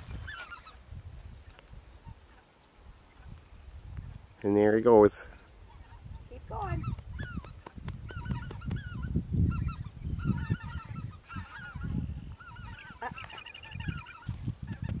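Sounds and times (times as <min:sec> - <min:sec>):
geese calling: 0:00.0 - 0:00.8, 0:05.4 - 0:15.0.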